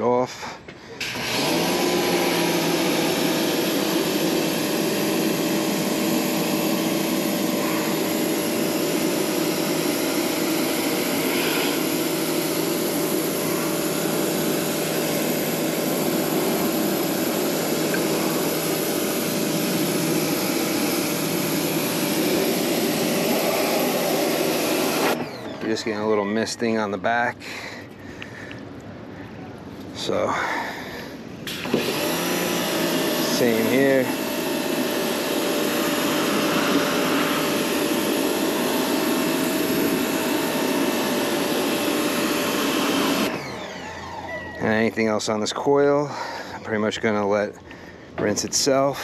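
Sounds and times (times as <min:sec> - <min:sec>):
pressure washer spraying water: 0:01.0 - 0:26.0, 0:31.4 - 0:43.5
steady hum: 0:03.6 - 0:26.0.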